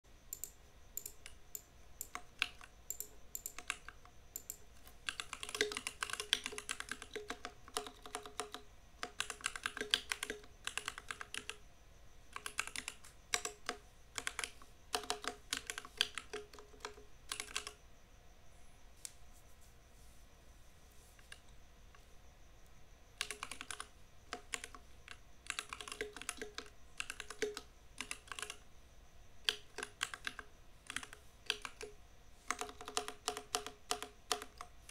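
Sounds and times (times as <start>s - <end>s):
mechanical keyboard typing: 0.3s - 11.6s, 12.3s - 17.8s, 23.2s - 28.7s, 29.4s - 34.9s.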